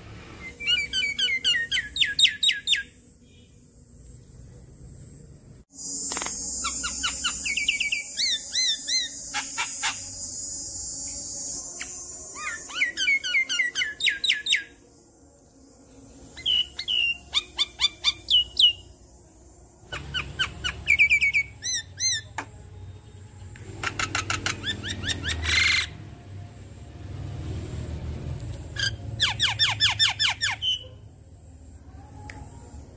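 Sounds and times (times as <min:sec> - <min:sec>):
bird whistled notes: 0:00.4 - 0:03.4, 0:05.8 - 0:14.8, 0:16.4 - 0:18.8.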